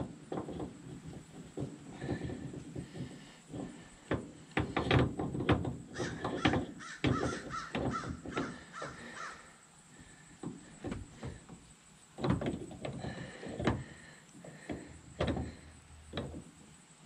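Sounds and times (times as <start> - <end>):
metal parts knocking and clunking: 0.0 - 9.2, 10.3 - 16.7
crow cawing: 6.0 - 9.5.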